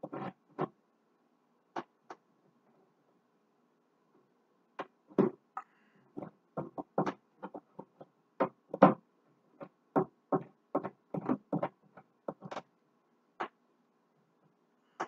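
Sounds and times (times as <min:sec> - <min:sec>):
plastic drawer knocks and clicks: 0:08.4 - 0:09.0, 0:09.6 - 0:12.6.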